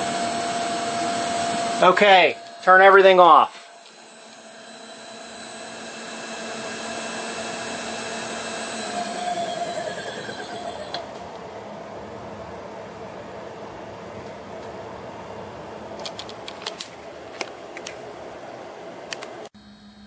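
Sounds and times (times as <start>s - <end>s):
pump whining: 0.0s - 11.1s.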